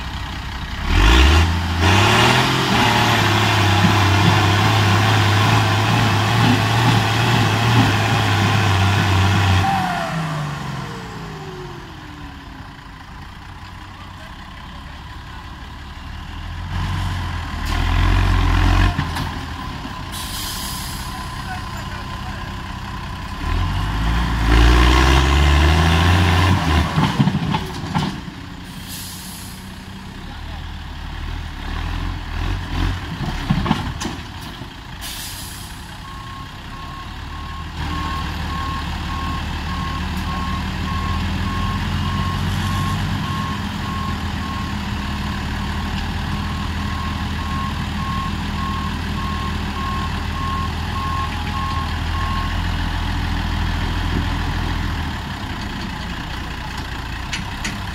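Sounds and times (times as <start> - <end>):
tractor engine revving: 0.0 - 13.3, 14.2 - 34.4, 35.0 - 57.9
reversing alarm beeping: 36.0 - 45.1, 46.3 - 52.7.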